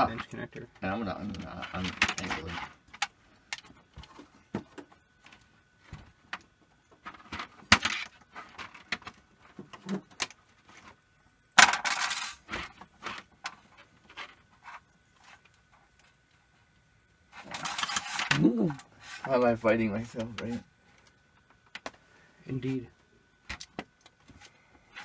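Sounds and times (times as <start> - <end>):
faint high whine: 0.0 - 25.0
small clicks and rustles of handling: 12.4 - 18.3
scraping rustle: 17.3 - 18.3.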